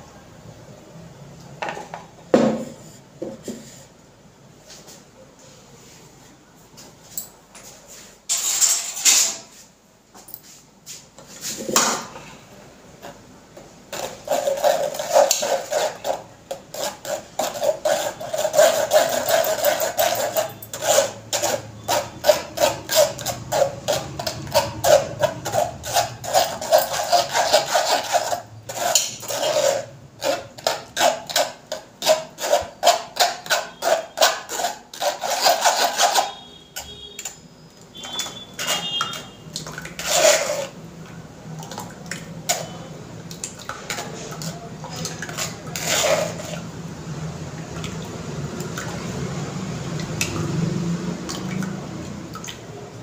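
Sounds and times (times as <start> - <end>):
spoon scraping pulp on mesh strainer: 13.9 - 40.8, 41.6 - 46.8.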